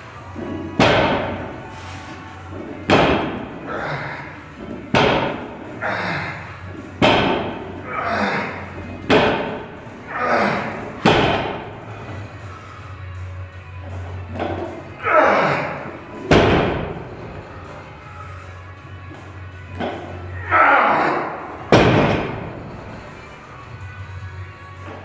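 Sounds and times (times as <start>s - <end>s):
man grunting with effort: 7.7s - 8.8s, 10.0s - 11.0s, 15.0s - 16.0s, 20.4s - 21.4s.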